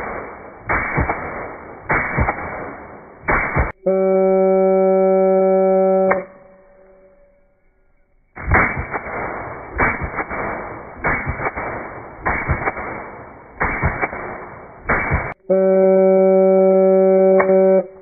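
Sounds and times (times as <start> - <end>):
slow motion rifle shots: 0.0 - 3.8, 8.4 - 15.4.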